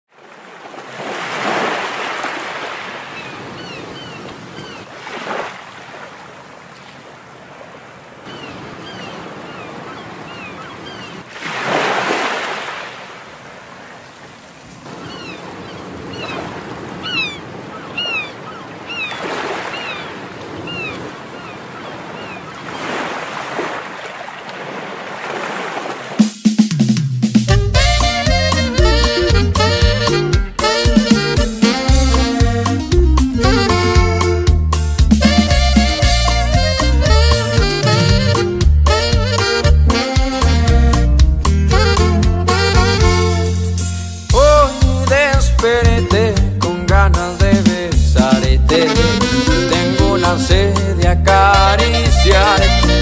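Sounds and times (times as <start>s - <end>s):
ocean waves breaking: 0.1s - 43.6s, 44.3s - 53.0s
short bird calls: 3.1s - 4.9s, 8.2s - 11.3s, 14.9s - 23.1s.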